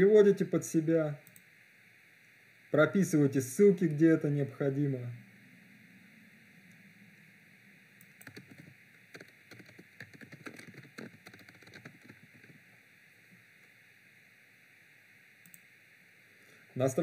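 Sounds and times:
keyboard typing: 0:08.0 - 0:12.6.

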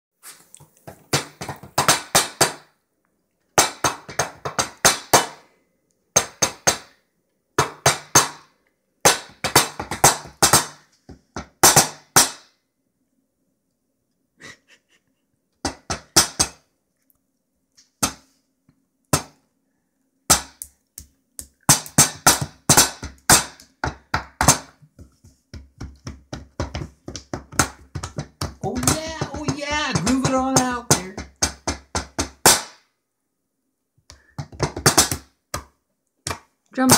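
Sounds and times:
hands drumming on wooden tabletop: 0:00.9 - 0:02.7, 0:03.6 - 0:05.4, 0:09.1 - 0:12.4, 0:20.3 - 0:32.8, 0:34.1 - 0:36.5.

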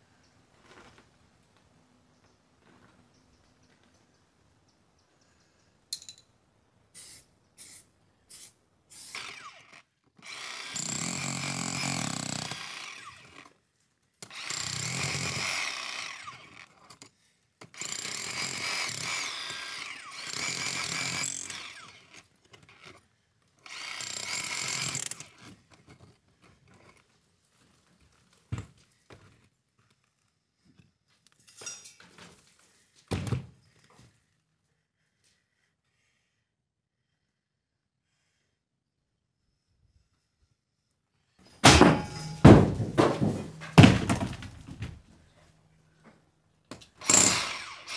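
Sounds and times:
rotary hammer drilling into stone: 0:09.0 - 0:13.6, 0:14.2 - 0:23.0, 0:23.6 - 0:26.1, 0:47.0 - 0:47.9.

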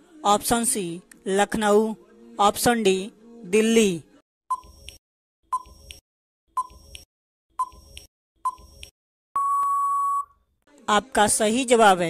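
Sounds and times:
short electronic beeps: 0:09.4 - 0:10.4.

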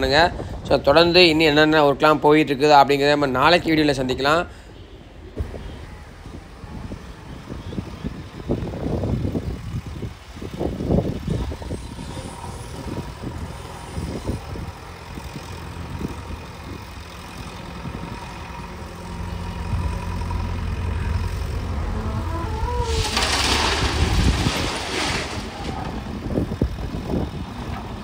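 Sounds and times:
vehicle engine running: 0:05.4 - 0:24.5
low rumbles: 0:05.4 - 0:28.0.

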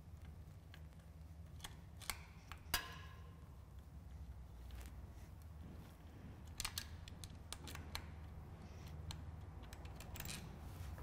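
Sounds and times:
steady low hum: 0:00.0 - 0:11.0
small metallic clicks: 0:00.2 - 0:03.9, 0:06.5 - 0:10.6.

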